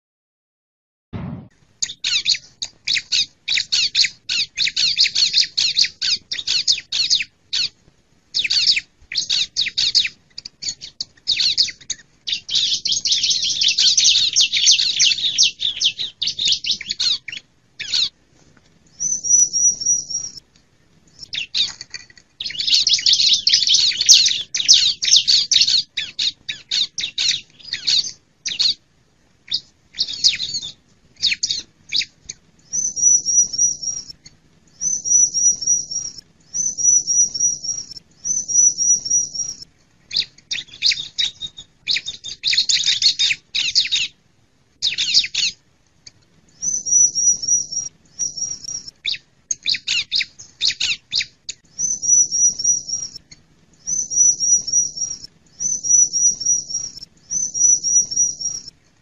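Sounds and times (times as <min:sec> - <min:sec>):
bird chattering trills: 0:08.4 - 0:18.2, 0:21.2 - 0:28.8, 0:46.6 - 0:53.2, 0:53.8 - 0:58.7
bird whistled phrases: 0:19.0 - 0:20.4, 0:22.4 - 0:28.8, 0:32.7 - 0:34.2, 0:34.8 - 0:44.1, 0:46.6 - 0:53.2, 0:53.8 - 0:58.7.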